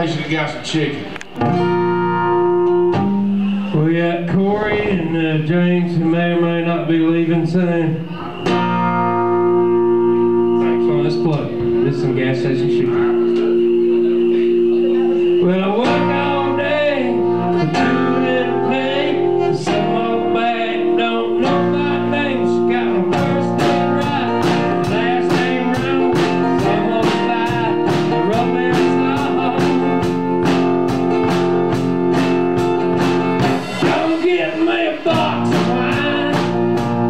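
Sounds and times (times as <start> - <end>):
electric guitar chords: 1.0 - 6.6, 7.3 - 37.0
drums steady beat: 8.4 - 37.0.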